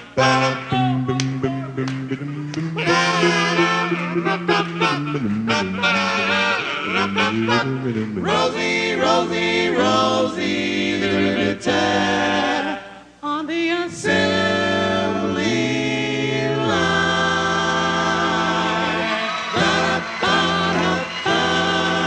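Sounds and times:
bass voice singing: 0:00.0 - 0:10.3
vocal group singing in harmony: 0:00.0 - 0:22.0.

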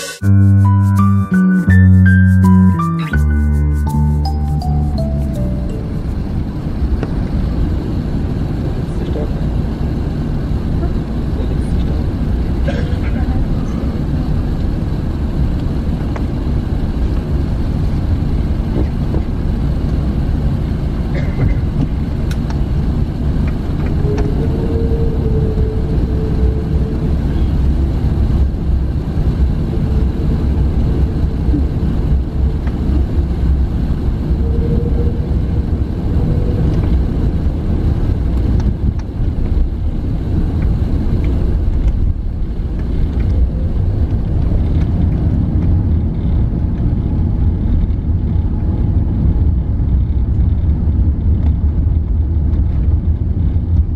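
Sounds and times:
aircraft cabin low rumble: 0:02.6 - 0:53.9
faint hum: 0:21.1 - 0:46.6.

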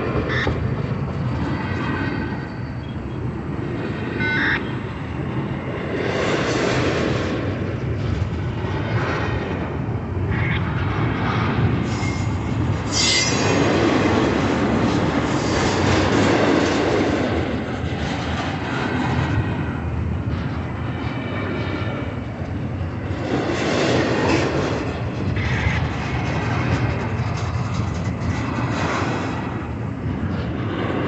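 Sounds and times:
freight train wheels rumbling: 0:00.0 - 0:31.0
wheel squeal: 0:11.9 - 0:13.7.

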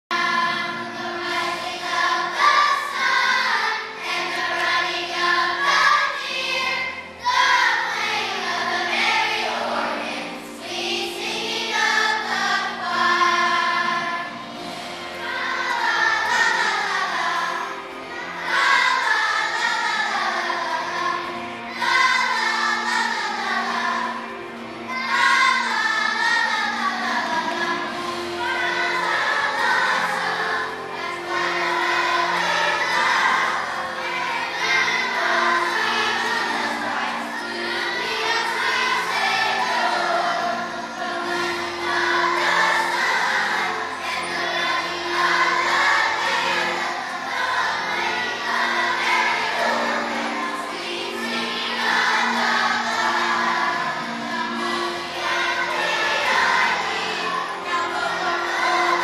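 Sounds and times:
children's choir singing: 0:00.0 - 0:59.0.

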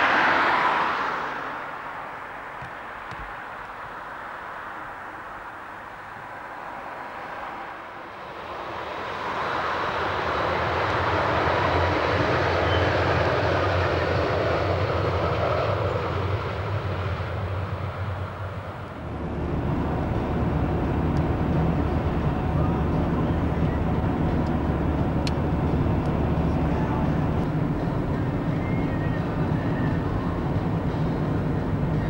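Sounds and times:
car engine hum and road noise: 0:00.0 - 0:08.0, 0:18.6 - 0:32.0
train passing at speed: 0:00.0 - 0:32.0.

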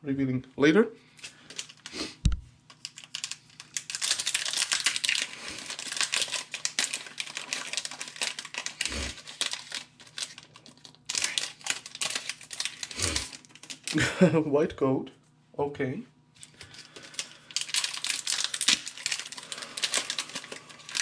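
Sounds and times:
foil wrapper crinkling: 0:01.2 - 0:02.0, 0:02.6 - 0:14.0, 0:16.4 - 0:21.0.

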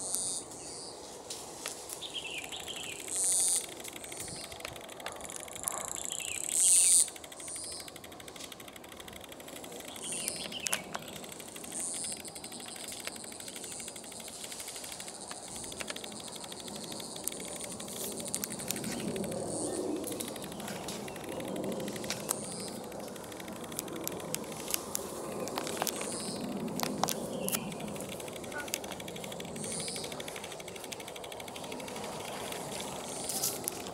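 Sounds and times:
insects trilling: 0:00.0 - 0:33.9
leaves and twigs rustling: 0:00.0 - 0:33.9
twigs snapping: 0:10.0 - 0:33.9.

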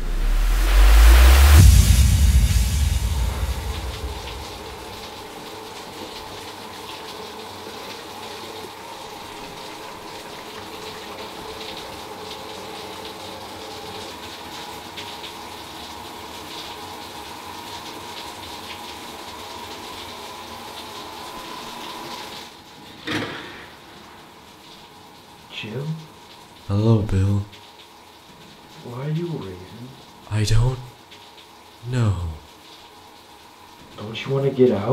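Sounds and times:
short loud sound: 0:00.0 - 0:05.1
shower spraying water: 0:00.0 - 0:34.9.

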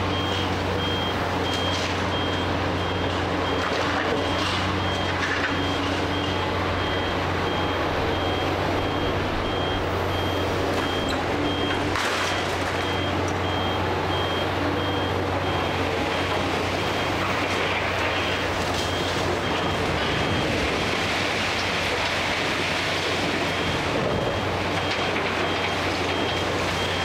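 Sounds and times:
excavator diesel engine running: 0:00.0 - 0:27.0
high-pitched warning beeps: 0:00.1 - 0:17.2, 0:23.5 - 0:27.0
demolition debris clattering: 0:00.8 - 0:27.0.

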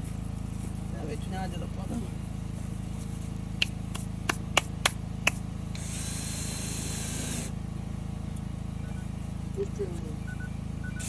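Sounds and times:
low mechanical hum: 0:00.0 - 0:11.0
hiss: 0:05.8 - 0:07.5.

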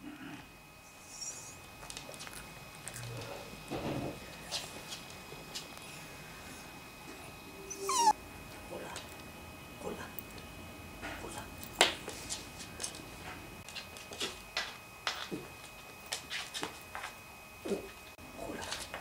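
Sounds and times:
dog whining: 0:07.6 - 0:08.2.

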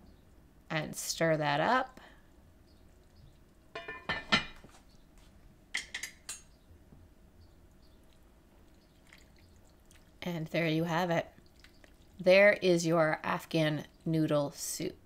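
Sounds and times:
metal kitchenware clinking: 0:03.7 - 0:04.6, 0:05.8 - 0:06.4.

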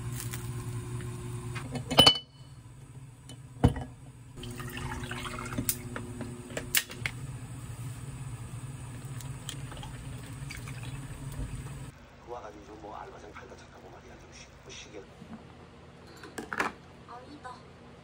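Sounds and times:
water pouring into glass: 0:04.4 - 0:05.8, 0:09.6 - 0:11.3.

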